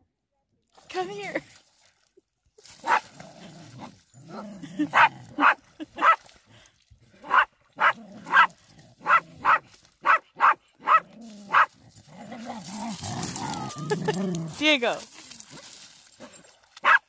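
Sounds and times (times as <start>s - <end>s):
dog barking: 2.8s - 3.0s, 4.9s - 6.2s, 7.2s - 11.7s, 16.8s - 17.0s.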